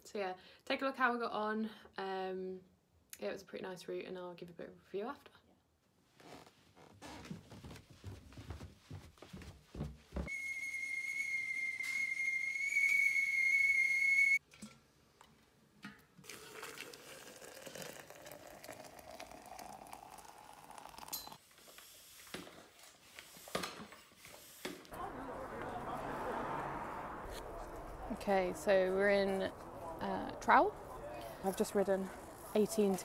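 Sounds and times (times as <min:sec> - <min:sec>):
kettle whistling: 0:10.3 - 0:14.4
hot water pouring into a jug: 0:16.2 - 0:22.2
floor pump inflating a tyre: 0:21.4 - 0:24.9.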